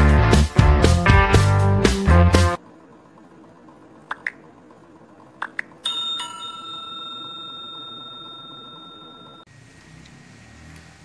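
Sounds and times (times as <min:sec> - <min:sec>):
short clicks: 0:04.1 - 0:04.4
notification bell chime: 0:05.8 - 0:09.5.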